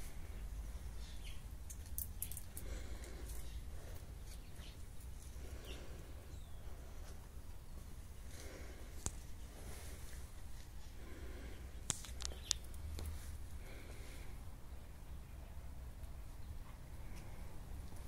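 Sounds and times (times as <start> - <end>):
light clicks: 11.8 - 13.1.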